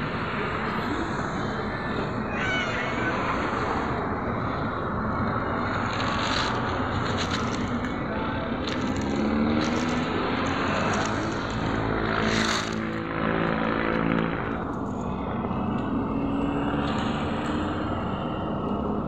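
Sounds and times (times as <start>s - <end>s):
vehicle engine running: 4.4s - 15.9s.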